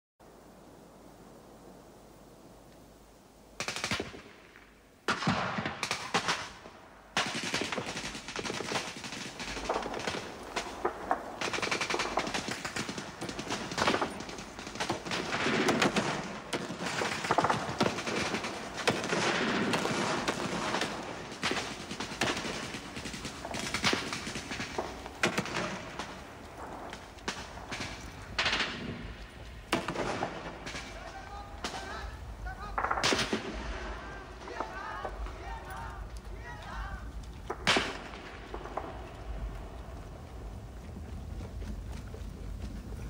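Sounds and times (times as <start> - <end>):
machine-gun and rifle fire: 3.6 - 4.4, 5.1 - 39.5
shell blasts: 3.6 - 32.1, 32.7 - 36.0, 37.2 - 39.6.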